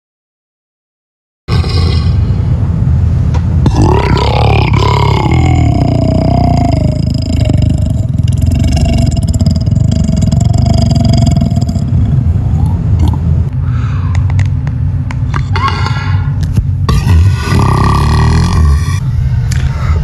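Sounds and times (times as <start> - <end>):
woman belching: 3.7 - 12.0, 16.9 - 19.0.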